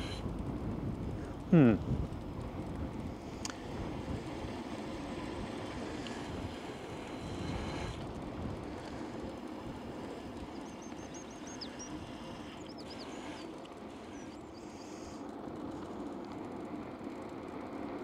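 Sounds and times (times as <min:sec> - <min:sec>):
bicycle tyre rumble: 0:00.0 - 0:18.0
small bird chirping: 0:10.4 - 0:15.1.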